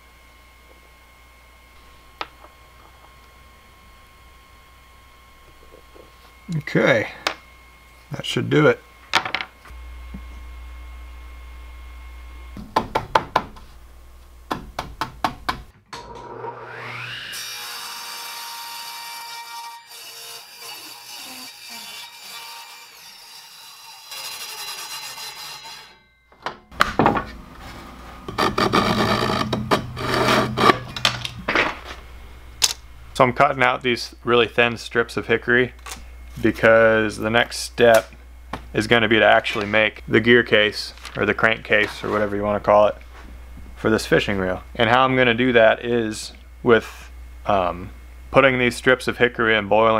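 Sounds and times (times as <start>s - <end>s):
table saw cutting wood: 16.0s - 26.0s, 27.4s - 31.1s.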